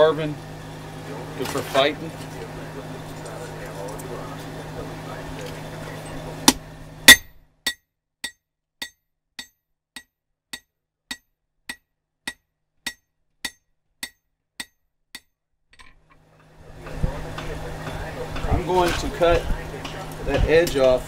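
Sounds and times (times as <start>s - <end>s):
hammer blow on anvil: 6.4s - 7.4s.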